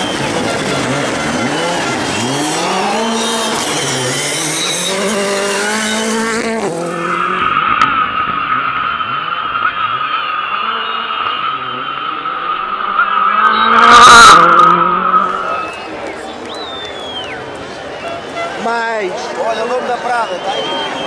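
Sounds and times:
car engine revving hard: 0:00.0 - 0:15.9
tyres skidding on gravel: 0:00.0 - 0:21.0.

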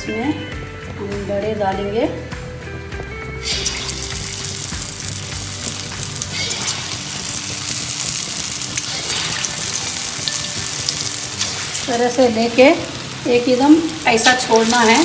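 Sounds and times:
batter dropped into oil: 0:03.4 - 0:11.9
batter sizzling in hot oil: 0:03.4 - 0:15.0.

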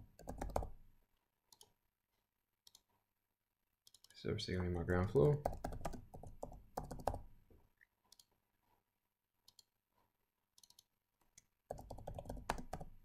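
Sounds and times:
keyboard typing: 0:00.0 - 0:00.8, 0:05.3 - 0:07.3, 0:10.5 - 0:13.0
keyboard and mouse clicks: 0:02.6 - 0:02.9, 0:03.8 - 0:04.2, 0:07.8 - 0:08.4, 0:09.4 - 0:09.8, 0:10.5 - 0:13.0.

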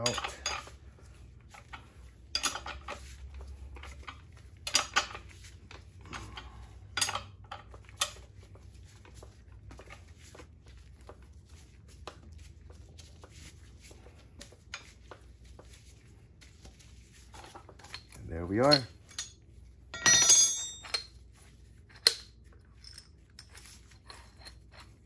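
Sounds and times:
metal wrenches clinking: 0:00.0 - 0:00.8, 0:02.3 - 0:03.1, 0:03.8 - 0:05.3, 0:06.0 - 0:08.2, 0:17.4 - 0:19.4, 0:20.0 - 0:21.2, 0:21.9 - 0:25.0
sharp metal clanks: 0:20.0 - 0:21.1.

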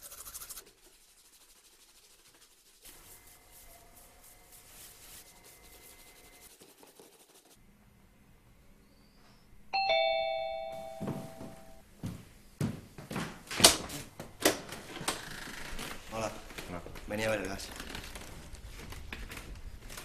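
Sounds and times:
two-tone doorbell chime: 0:09.7 - 0:11.8.

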